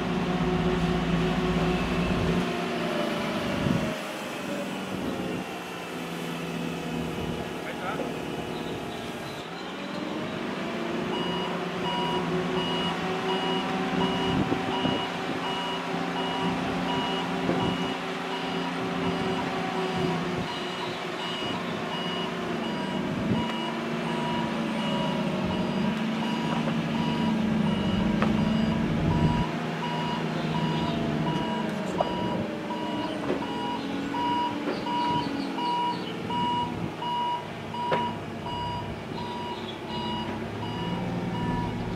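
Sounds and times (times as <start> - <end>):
forklift engine running: 0.0 - 41.9
backup alarm beeping: 11.2 - 19.4, 20.5 - 41.9.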